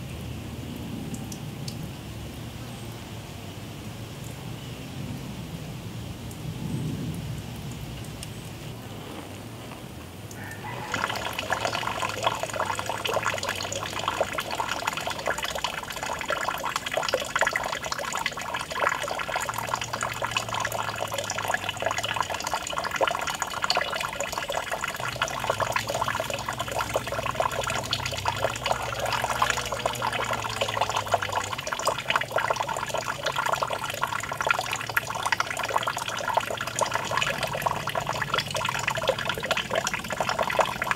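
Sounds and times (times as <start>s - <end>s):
fountain water splashing into pond: 10.3s - 40.9s.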